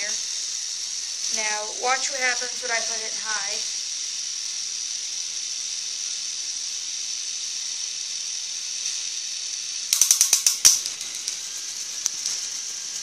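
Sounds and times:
model engine gears whirring: 0.0s - 13.0s.

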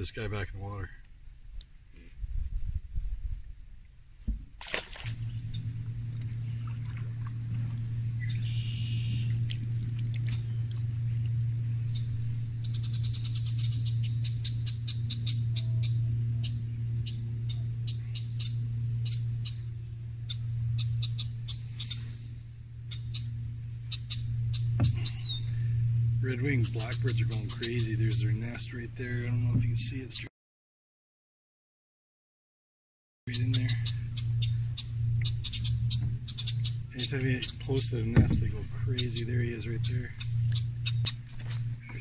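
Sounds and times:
steady low hum: 0.0s - 30.3s, 33.3s - 42.0s
brief splash: 4.6s - 5.5s
blackbirds giving sharp alarm calls: 23.9s - 25.4s.

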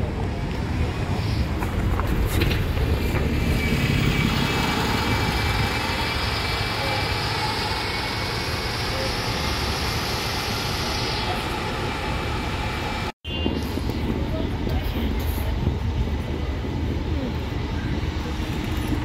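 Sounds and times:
bus engine rumbling: 0.0s - 19.0s
engine hissing: 0.9s - 14.0s.

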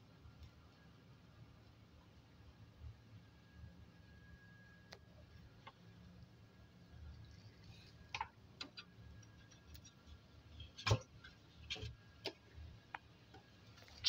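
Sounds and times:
faint steady low hum: 0.0s - 14.0s
light clicks and taps on plastic and metal: 8.1s - 10.0s.

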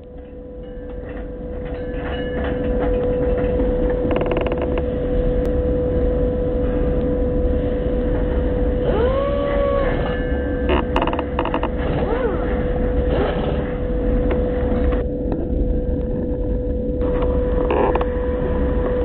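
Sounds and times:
low rumble: 0.0s - 19.0s
steady hum: 0.0s - 19.0s
crate rolling on conveyor rollers: 0.7s - 5.4s, 8.2s - 16.5s.

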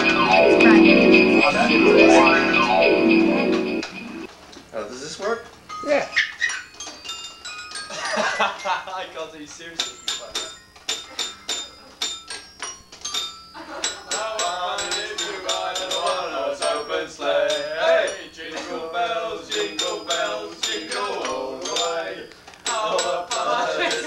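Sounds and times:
bright bell-like notes: 0.0s - 4.3s
person singing: 0.0s - 4.3s.

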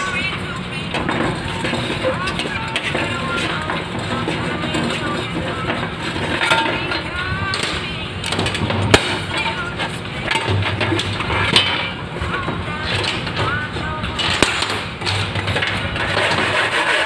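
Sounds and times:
background voices: 0.0s - 16.2s
metal clinking and knocking: 0.9s - 16.4s.

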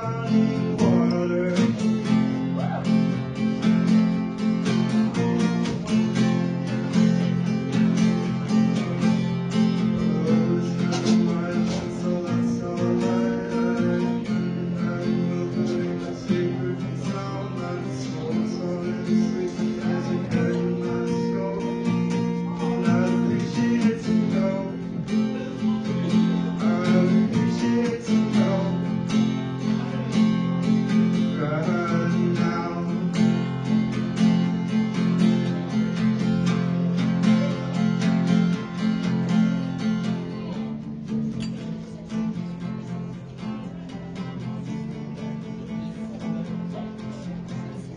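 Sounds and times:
acoustic guitar strumming: 0.0s - 47.9s
person singing: 9.8s - 30.2s.

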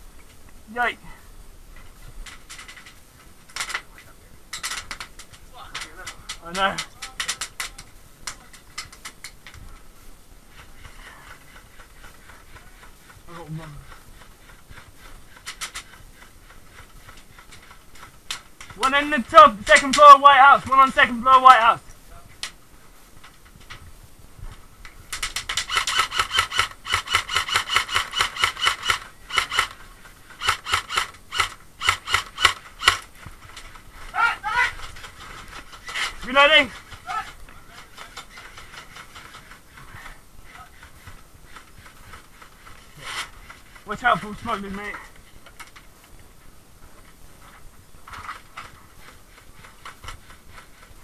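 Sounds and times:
airsoft rifle automatic fire: 25.2s - 29.8s, 30.4s - 33.1s.

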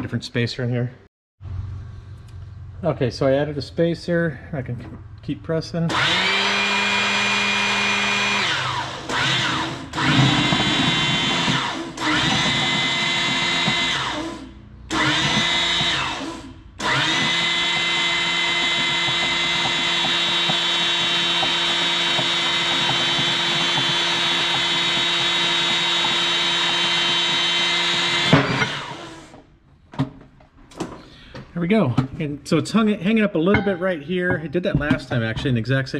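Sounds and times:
hydraulic pump motor whine: 5.9s - 29.5s.

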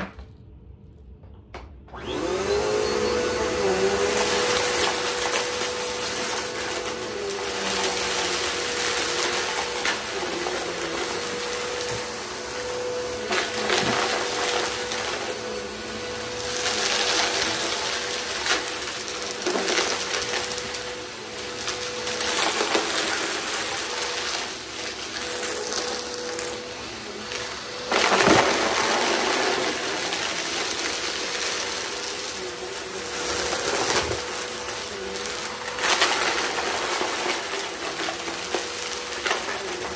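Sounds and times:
vacuum cleaner motor whine: 1.5s - 39.9s
debris rattling through vacuum: 1.9s - 39.9s.

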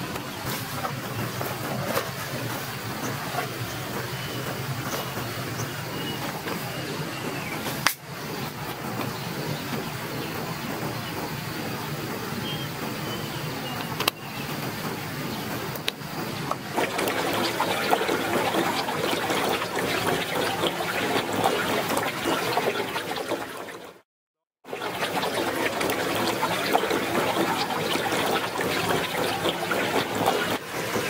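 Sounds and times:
stream water trickling: 15.7s - 24.0s, 24.7s - 31.0s.

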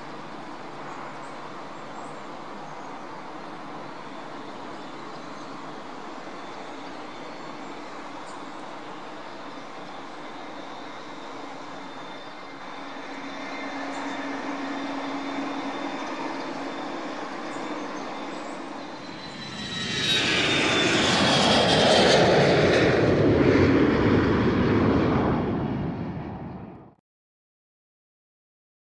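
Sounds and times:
loud rushing aircraft engine: 0.1s - 27.0s
jet engines whining: 0.2s - 26.9s.

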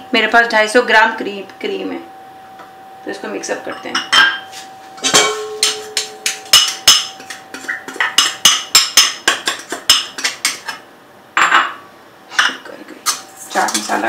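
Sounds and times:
glass bowl clinking on steel bowl: 3.6s - 10.7s, 11.4s - 11.8s.

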